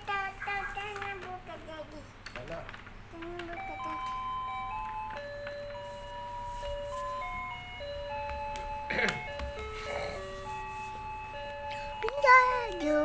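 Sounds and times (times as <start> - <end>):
electronic jingle melody: 3.7 - 13.0.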